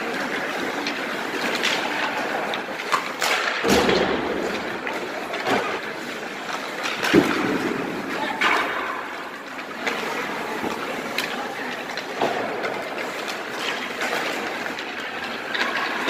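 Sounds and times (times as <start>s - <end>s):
skates scraping ice: 0.0s - 16.0s
sticks and pucks knocking: 0.1s - 16.0s.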